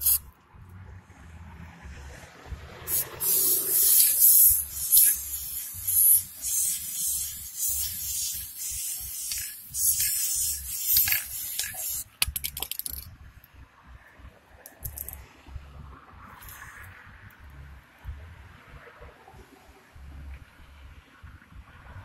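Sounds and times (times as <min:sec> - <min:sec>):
spray paint hissing from can: 0:00.0 - 0:00.3, 0:02.9 - 0:13.1, 0:14.7 - 0:15.2, 0:16.4 - 0:16.9
rattle of clicks: 0:02.9 - 0:13.1, 0:14.6 - 0:15.2.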